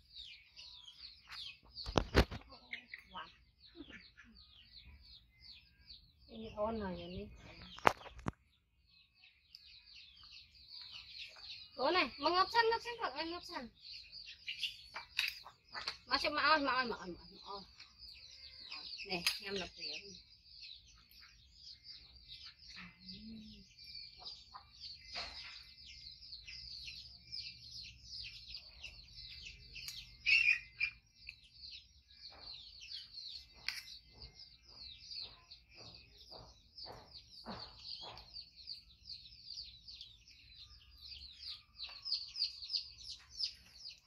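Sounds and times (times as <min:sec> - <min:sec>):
small birds chirping: 0:00.0 - 0:44.0.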